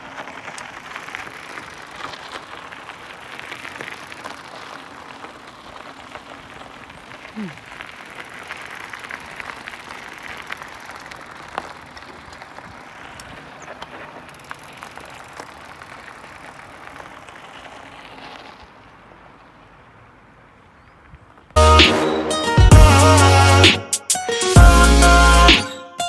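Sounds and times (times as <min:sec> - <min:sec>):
bike tyres crunching on gravel: 0:00.0 - 0:22.2
loud music with a beat: 0:21.6 - 0:26.0.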